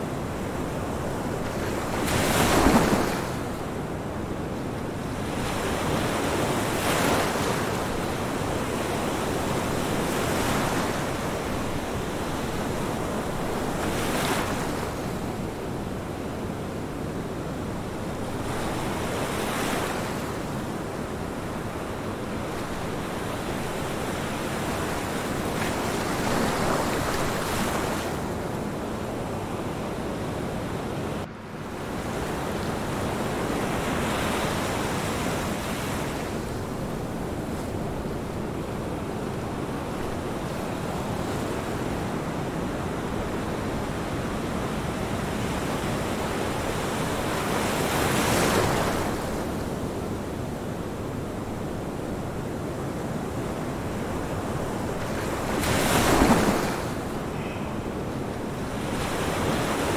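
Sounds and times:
ocean waves washing: 0:31.3 - 0:59.9.

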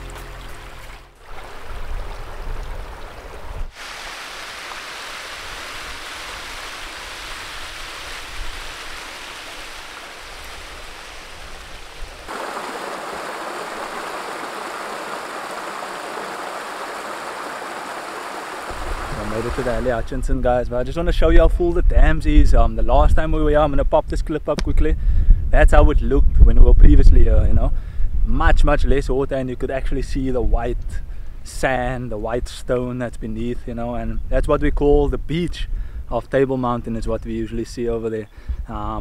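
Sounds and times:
water rushing over stone step: 0:03.7 - 0:20.1.

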